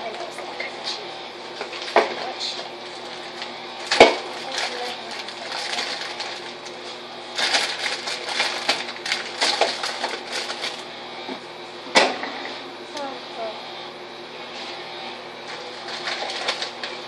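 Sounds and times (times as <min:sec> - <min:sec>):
plastic packaging rustling: 0:02.9 - 0:10.8, 0:15.5 - 0:17.0.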